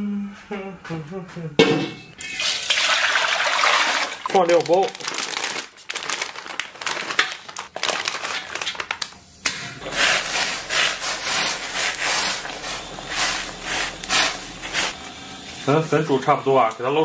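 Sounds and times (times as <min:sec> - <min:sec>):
water boiling in a wok: 0:02.2 - 0:04.4, 0:09.8 - 0:17.0
plastic packet crinkling: 0:02.8 - 0:15.0
chopsticks stirring noodles: 0:09.8 - 0:15.0.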